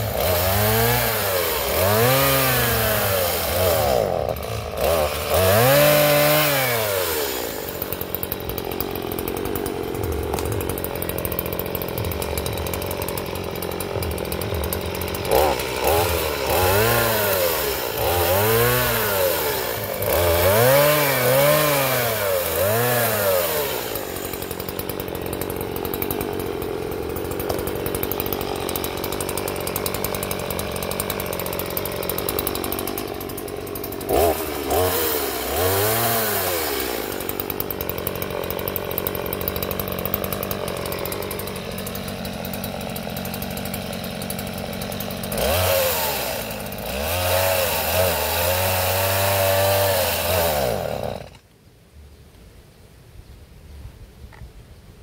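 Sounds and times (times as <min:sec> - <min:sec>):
chainsaw revving and idling: 0:00.0 - 0:51.5.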